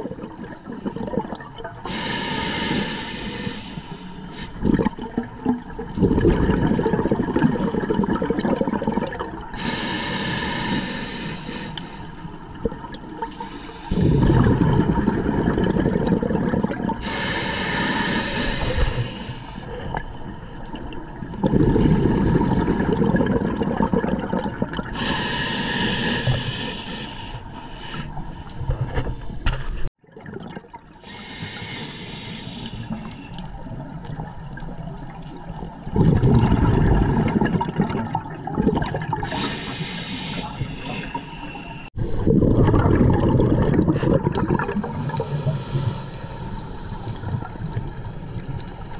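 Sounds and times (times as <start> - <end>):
exhaled bubbles underwater: 0.0 - 48.9
regulator inhale hiss: 1.8 - 4.6, 9.6 - 12.4, 13.3 - 14.3, 17.0 - 20.3, 21.7 - 22.9, 25.0 - 29.9, 31.0 - 33.5, 39.3 - 42.0, 44.8 - 48.9.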